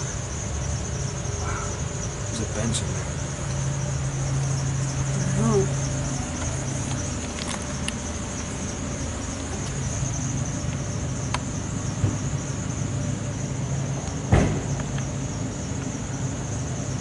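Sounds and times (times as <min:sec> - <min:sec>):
insects chirring: 0:00.0 - 0:17.0
low engine-like hum: 0:00.0 - 0:17.0
sharp knock: 0:14.3 - 0:14.7.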